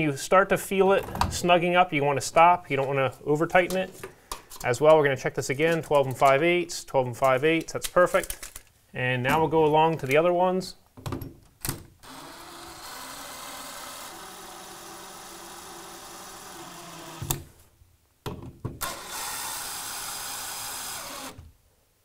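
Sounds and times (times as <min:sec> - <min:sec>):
cordless drill driving screws: 0:12.0 - 0:17.4, 0:18.8 - 0:21.4
drill clicks: 0:12.0 - 0:17.4, 0:18.8 - 0:21.4.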